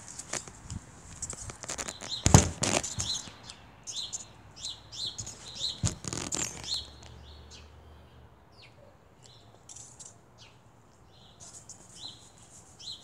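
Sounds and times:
small bird chirping: 0:01.2 - 0:07.8, 0:08.6 - 0:13.0
thuds on a trampoline mat: 0:02.2 - 0:03.2.

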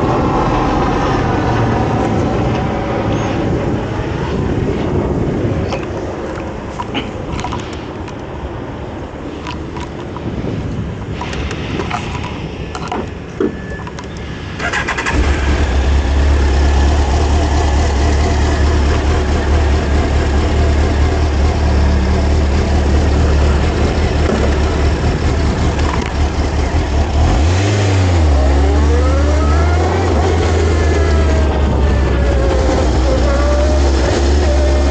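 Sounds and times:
engine revving: 0:14.6 - 0:34.9
motorcycle engine starting and idling: 0:14.6 - 0:34.9.

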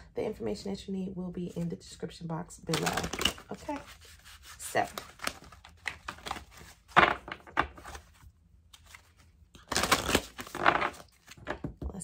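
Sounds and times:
cards being shuffled: 0:02.6 - 0:11.7.

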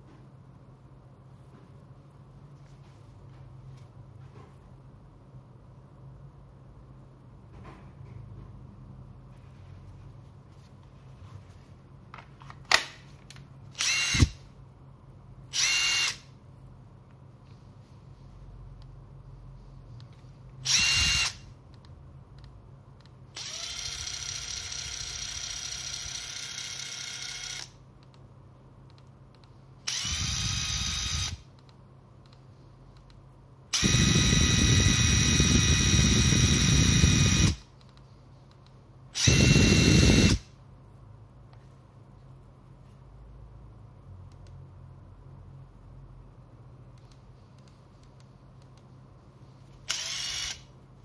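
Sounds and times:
impact driver whining: 0:13.8 - 0:14.4, 0:20.7 - 0:21.4, 0:33.8 - 0:37.6, 0:39.2 - 0:40.4.

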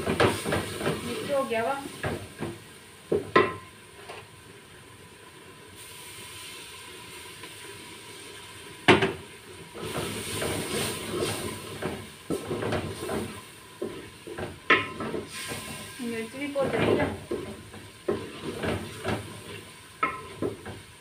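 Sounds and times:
masala sizzling in a pot: 0:00.0 - 0:21.0
spoon scraping and stirring: 0:16.7 - 0:20.5
spoon knocking against pot: 0:20.0 - 0:20.8.

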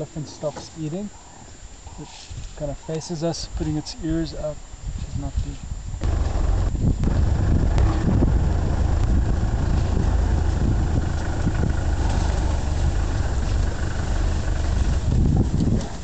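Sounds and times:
vehicle engine idling: 0:06.0 - 0:16.0.

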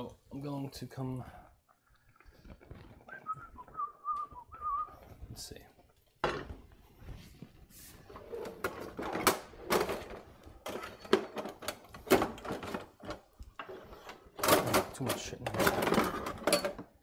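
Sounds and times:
metal utensils clattering in drawer: 0:08.4 - 0:17.0.

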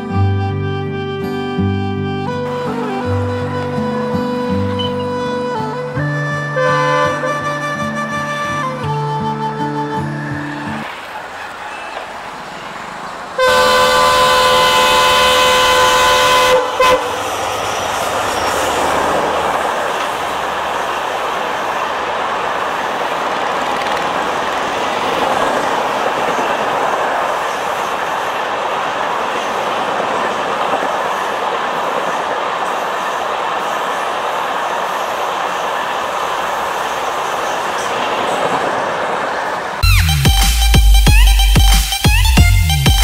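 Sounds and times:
locomotive horn: 0:00.0 - 0:10.9, 0:13.4 - 0:17.4
train wheels rolling on rails: 0:02.4 - 0:43.0.

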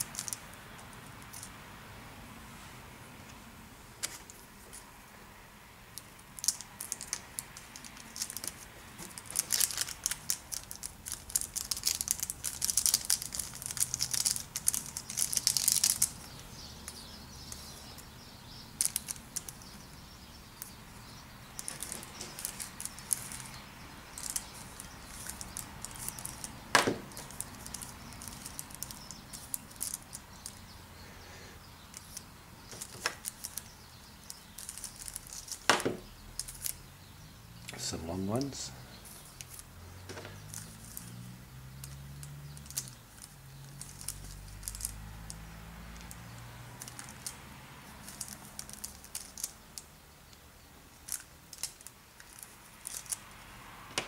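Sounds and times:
crackling and tearing: 0:06.4 - 0:17.6, 0:18.8 - 0:19.7, 0:21.6 - 0:30.6, 0:31.9 - 0:36.8, 0:41.8 - 0:49.9, 0:50.9 - 0:53.3.

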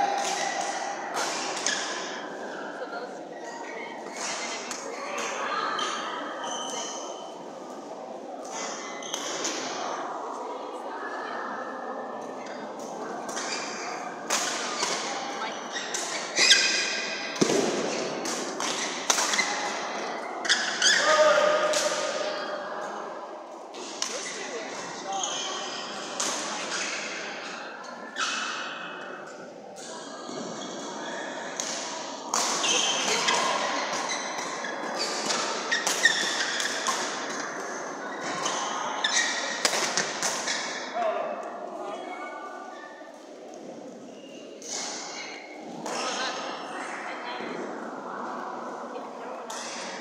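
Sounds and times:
court shoes squeaking: 0:05.8 - 0:07.3, 0:08.5 - 0:09.5, 0:14.7 - 0:18.0, 0:18.6 - 0:21.3, 0:23.8 - 0:28.8, 0:32.3 - 0:41.0
rackets hitting shuttlecock: 0:15.9 - 0:19.8, 0:39.2 - 0:40.9.

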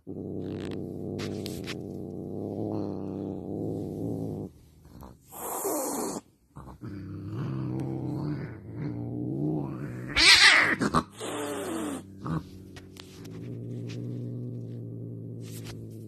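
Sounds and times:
cat growling: 0:00.0 - 0:16.0
cat hissing and yowling: 0:05.3 - 0:06.3, 0:09.8 - 0:12.3.

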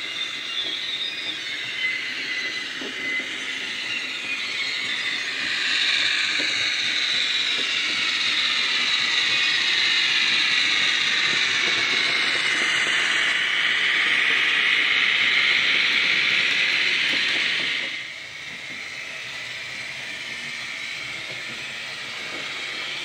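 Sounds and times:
high-pitched wheel flange squeal: 0:00.0 - 0:18.0.

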